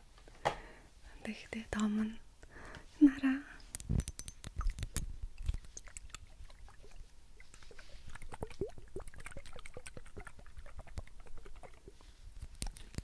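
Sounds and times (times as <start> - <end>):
fingernails tapping on glass bottle: 3.8 - 5.7
liquid sloshing in bottle: 4.0 - 13.0.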